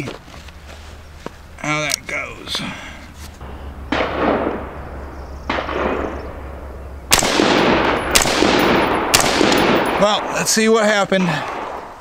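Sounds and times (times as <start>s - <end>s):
rifle shots with ringing echo: 3.4s - 10.8s, 11.4s - 12.0s.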